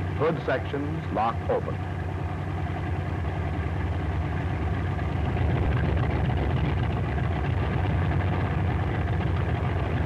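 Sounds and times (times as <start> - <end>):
radial aircraft engine running: 0.0 - 10.0.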